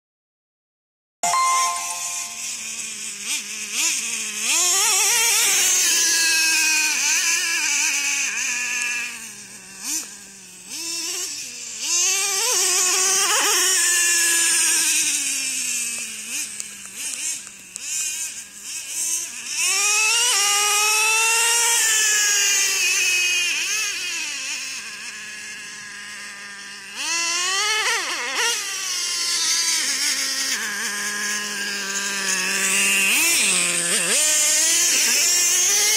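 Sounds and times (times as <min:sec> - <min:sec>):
small nitro engine revving: 0:01.6 - 0:35.9.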